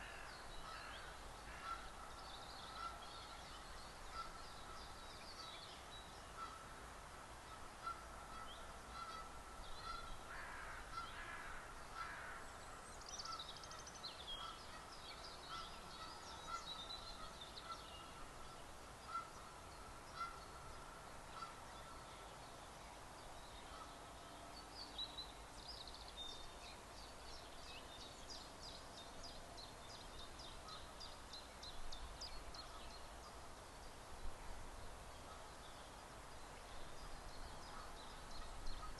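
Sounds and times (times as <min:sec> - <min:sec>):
crow calling: 0:00.0 - 0:03.3, 0:07.8 - 0:12.5
songbirds singing: 0:00.0 - 0:38.9
geese honking: 0:02.7 - 0:03.0, 0:07.8 - 0:11.4, 0:19.1 - 0:19.4, 0:20.2 - 0:20.5, 0:21.3 - 0:21.6.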